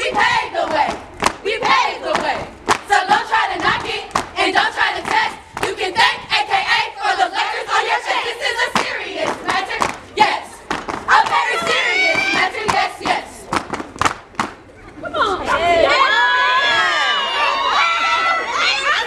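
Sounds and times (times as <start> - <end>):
women chanting and shouting: 0.0 - 13.5, 18.1 - 19.0
hand claps: 13.5 - 14.6.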